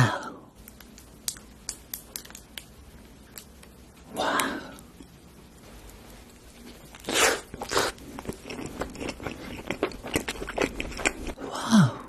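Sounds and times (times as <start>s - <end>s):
crunchy chewing of pizza crust: 6.5s - 11.4s.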